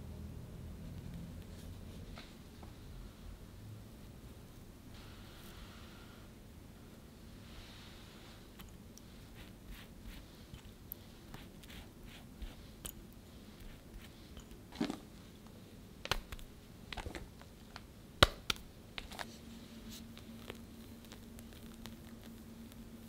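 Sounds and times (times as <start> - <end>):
faint steady hum: 0.0 - 23.0
pastry brush dabbing cake: 7.6 - 14.8
spatula spreading cream: 9.0 - 15.0.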